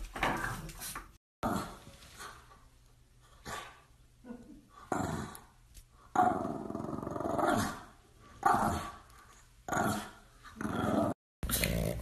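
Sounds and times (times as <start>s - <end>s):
dog growling: 6.1s - 9.0s, 9.7s - 12.0s.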